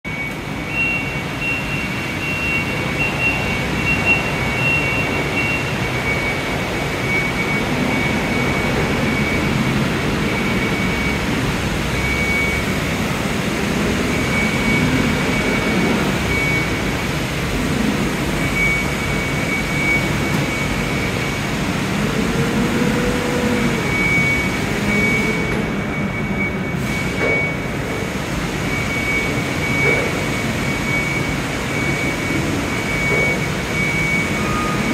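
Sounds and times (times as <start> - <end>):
forklift engine running: 0.1 - 34.9
high warning beeper: 28.6 - 34.9.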